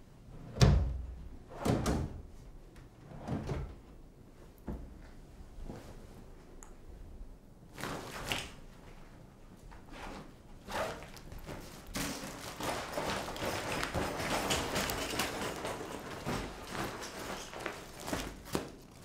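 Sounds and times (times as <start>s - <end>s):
clothes and backpack rustling: 7.7s - 19.0s.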